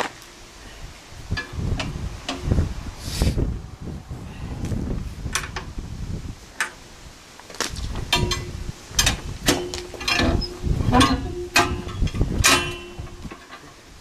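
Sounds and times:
handwheel metal clanks and clicks: 0:08.1 - 0:13.8.

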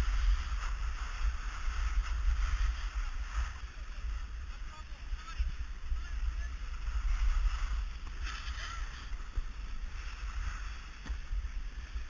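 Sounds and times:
skis sliding on snow: 0:00.0 - 0:12.0
wind buffeting microphone: 0:00.0 - 0:12.0.

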